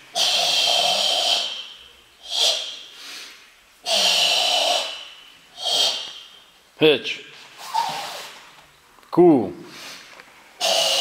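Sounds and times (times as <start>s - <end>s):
forceful hissing exhalations: 0.1s - 6.3s, 9.7s - 11.0s
breathing in: 2.7s - 4.1s.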